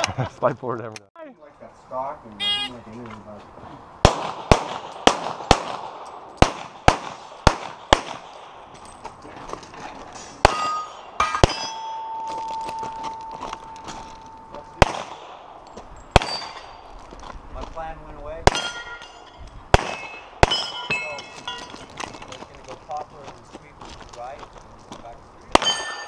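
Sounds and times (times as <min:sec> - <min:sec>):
handgun shots: 0:04.0 - 0:08.4, 0:14.8 - 0:15.4, 0:16.2 - 0:16.6
steel targets ringing: 0:10.4 - 0:15.0, 0:16.0 - 0:16.9, 0:18.5 - 0:21.9, 0:25.6 - 0:26.0
steady ringing tone: 0:10.5 - 0:14.8.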